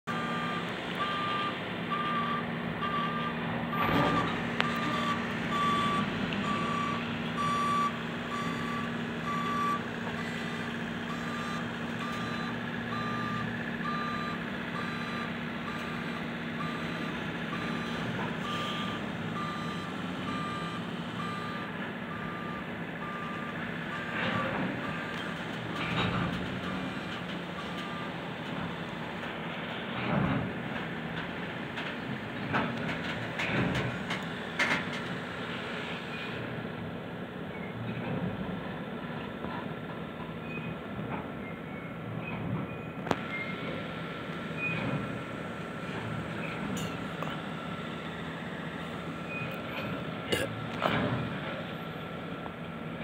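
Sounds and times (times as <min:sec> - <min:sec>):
backup alarm beeping: 0:00.1 - 0:03.3, 0:04.0 - 0:24.2.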